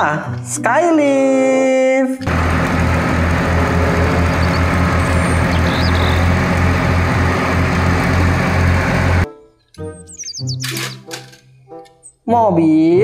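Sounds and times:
diesel truck engine straining: 2.2s - 9.3s.

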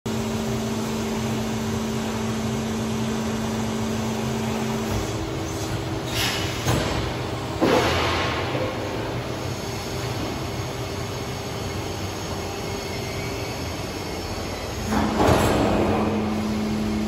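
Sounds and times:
machine humming with held tones: 8.5s - 17.0s.

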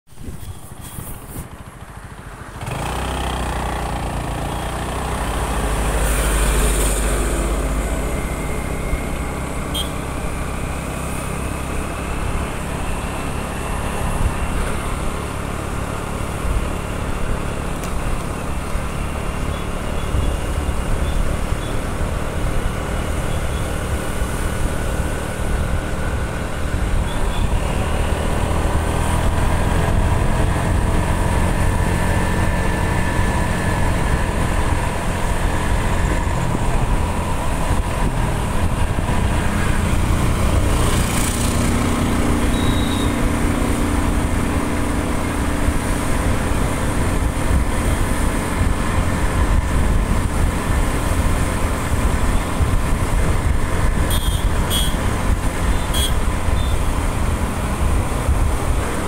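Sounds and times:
wind buffeting microphone: 28.4s - 41.9s, 45.1s - 59.0s
motorbike engine running: 29.8s - 59.0s.

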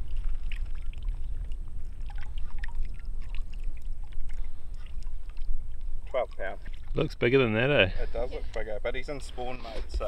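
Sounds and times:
water pouring from a net: 0.0s - 5.6s
faint splashes: 0.0s - 8.7s.

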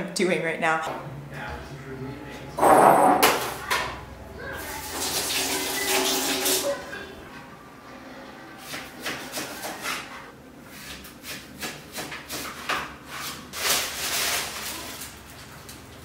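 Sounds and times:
scraping and rustling food preparation: 4.4s - 16.0s.

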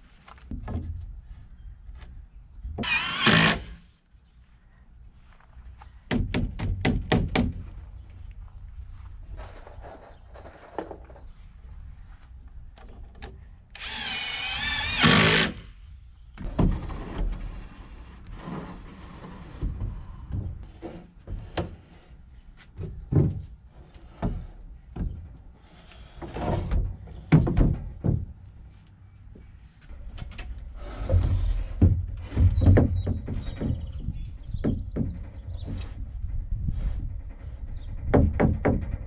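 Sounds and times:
lumber knocks and thumps: 0.5s - 1.2s, 6.1s - 7.8s, 16.4s - 17.7s, 18.3s - 25.5s, 26.2s - 28.6s, 30.1s - 37.1s, 37.9s - 39.0s
power drill driving screw: 2.8s - 3.8s, 13.8s - 15.7s.

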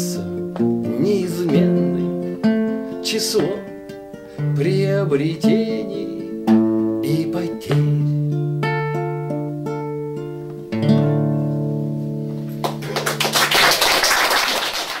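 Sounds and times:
acoustic guitar: 0.0s - 13.4s
audience clapping: 12.6s - 15.0s.

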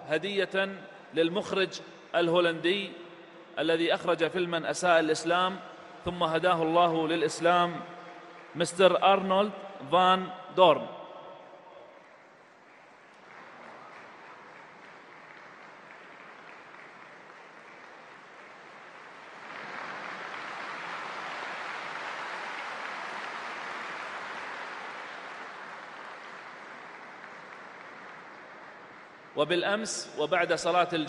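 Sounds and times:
large audience applauding: 7.4s - 9.3s, 11.8s - 29.4s.

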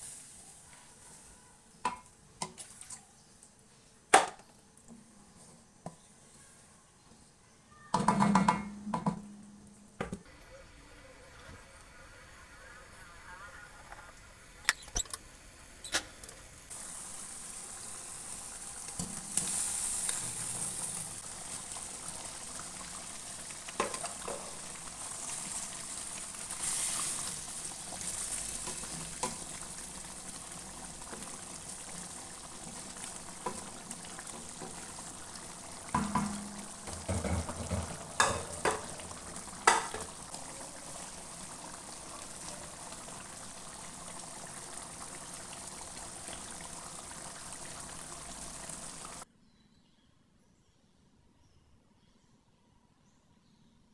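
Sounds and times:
knocks against a pan: 7.9s - 9.4s, 35.9s - 38.9s, 39.6s - 40.1s
curry bubbling and sizzling in oil: 16.7s - 49.3s.

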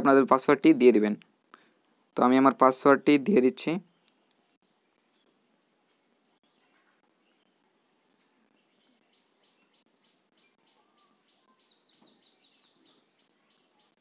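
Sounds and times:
faint bird chirping: 3.8s - 14.0s.

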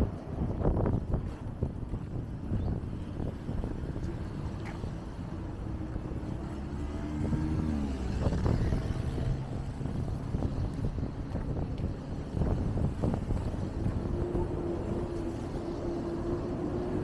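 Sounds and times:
traffic low rumble: 0.0s - 17.0s
vehicle engine passing: 3.9s - 17.0s.

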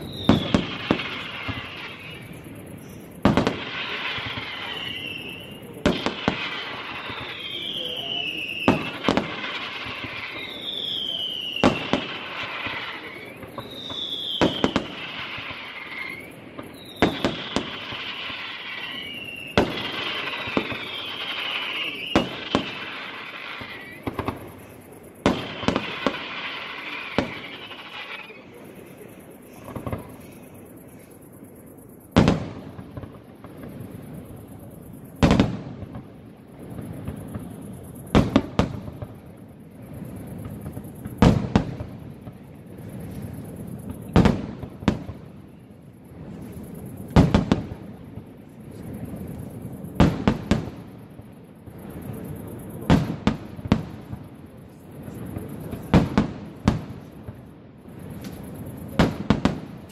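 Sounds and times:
firework shells bursting: 0.0s - 31.1s
falling firework whistle: 0.0s - 31.3s, 51.6s - 59.9s
firework crackle: 0.0s - 59.9s.

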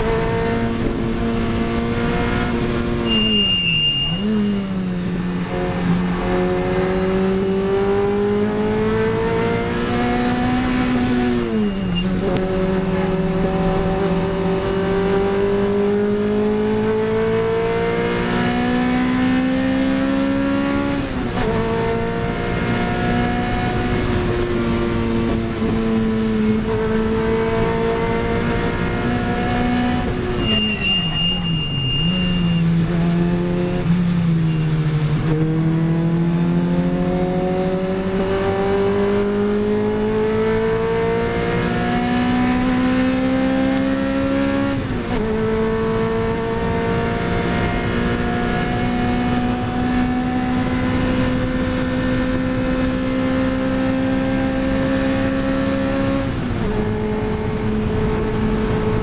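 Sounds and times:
car engine at full pace: 0.0s - 59.0s
short high beep: 3.0s - 4.6s, 11.5s - 12.2s, 30.4s - 32.9s, 34.4s - 34.7s.

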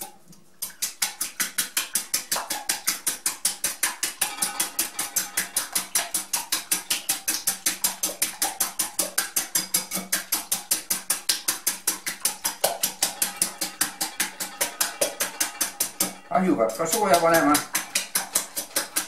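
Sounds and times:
whisk clicking against glass bowl: 0.0s - 19.0s.

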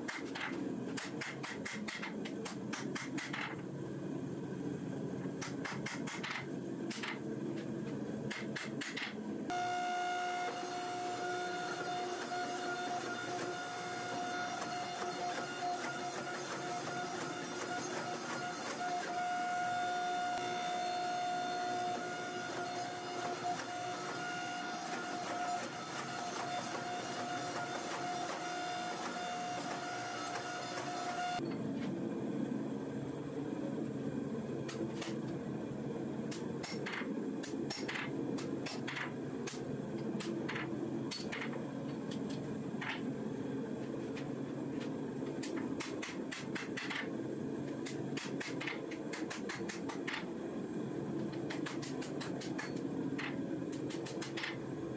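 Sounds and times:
hydraulic press whine: 8.3s - 31.7s.

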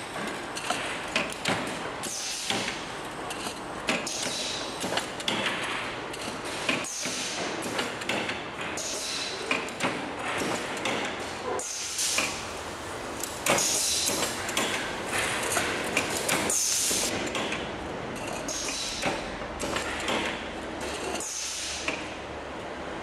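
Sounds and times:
machinery running: 11.8s - 18.4s.

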